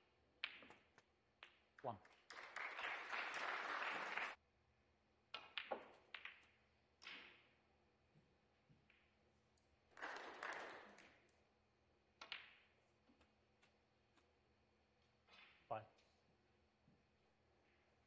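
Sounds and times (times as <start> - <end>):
snooker balls clacking: 0.4 - 1.8, 5.3 - 7.6.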